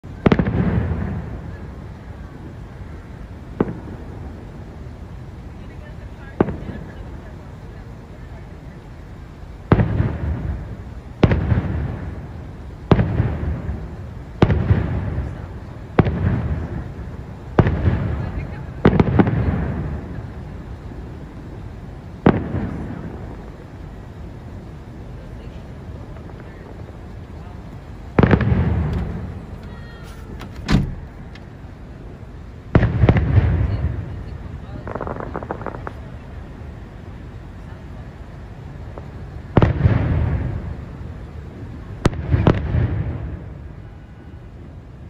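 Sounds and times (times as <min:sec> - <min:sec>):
firework shells booming: 0:00.0 - 0:01.8, 0:02.4 - 0:04.9, 0:05.8 - 0:07.5, 0:09.6 - 0:24.8, 0:25.8 - 0:36.2, 0:38.8 - 0:41.0, 0:41.6 - 0:43.8.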